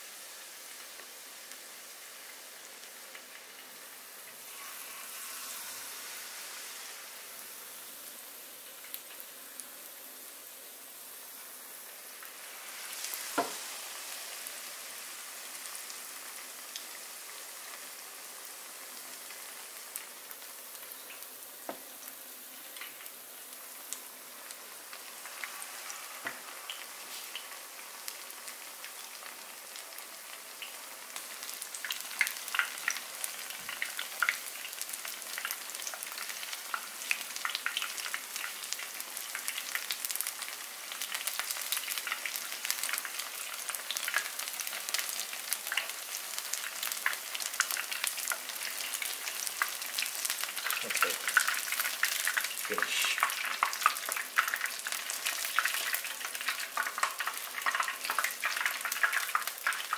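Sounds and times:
battered fish deep-frying in oil: 0.0s - 59.9s.

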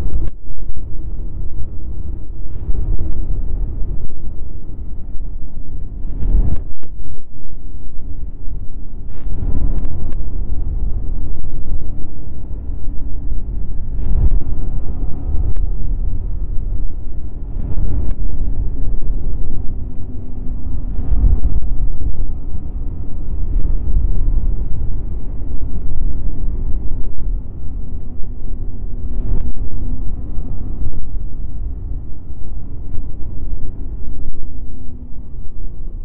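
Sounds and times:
snowmobile engine rumble: 0.0s - 36.0s
wind on microphone: 0.0s - 36.0s.

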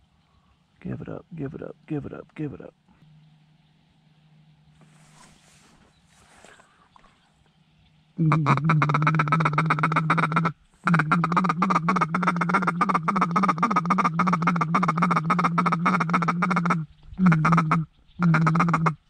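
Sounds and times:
duck call quacking: 8.2s - 19.0s.

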